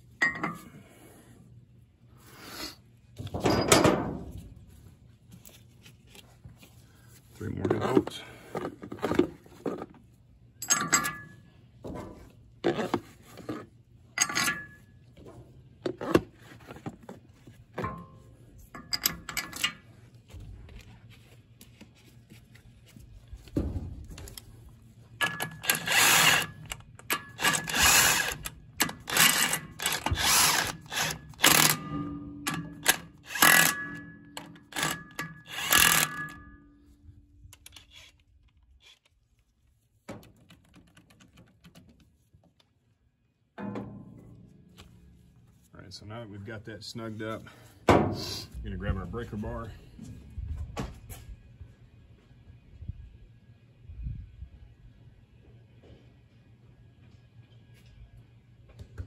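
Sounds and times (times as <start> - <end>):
impact wrench bursts: 25.2 - 36.4.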